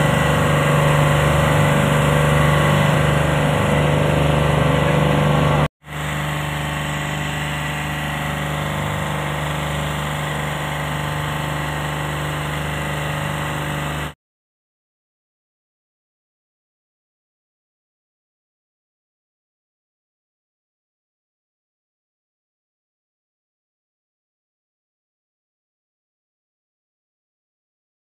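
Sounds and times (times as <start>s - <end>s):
boat engine droning: 0.0s - 14.2s.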